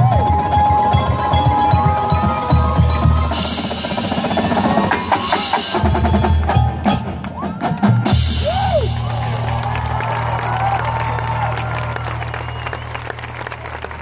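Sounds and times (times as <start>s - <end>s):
marching drums: 0.0s - 9.8s
marimbas: 0.0s - 12.2s.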